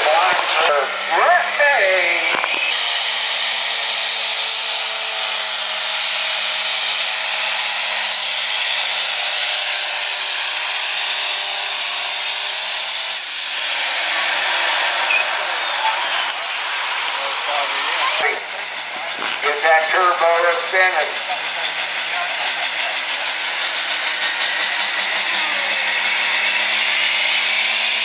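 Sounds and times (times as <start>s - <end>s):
diesel engine screaming: 0.0s - 28.0s
turbo whine and hiss: 10.8s - 21.8s.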